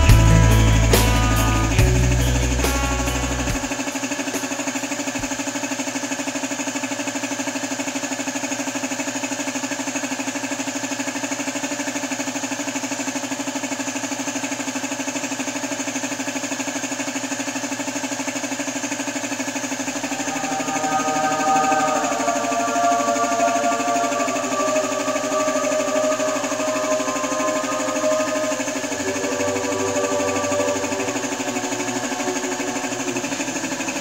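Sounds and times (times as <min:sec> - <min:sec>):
air compressor pulsing: 0:19.0 - 0:34.0.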